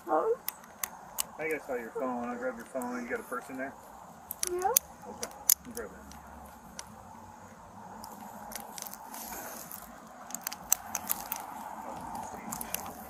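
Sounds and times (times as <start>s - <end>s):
clothing rustling against microphone: 8.1s - 10.2s
light clicks and taps: 9.7s - 13.0s.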